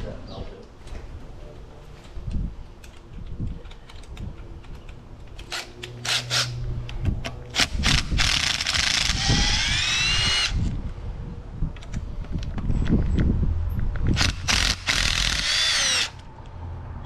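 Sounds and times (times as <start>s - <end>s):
cordless drill motor whining: 7.6s - 10.8s, 14.2s - 16.2s.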